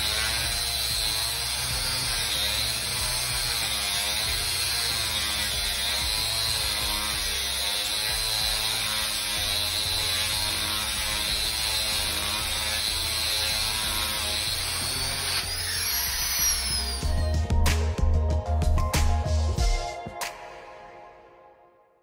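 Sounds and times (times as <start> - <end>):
drill bit grinding stone: 0.0 - 17.4
electric drill motor running: 0.0 - 17.5.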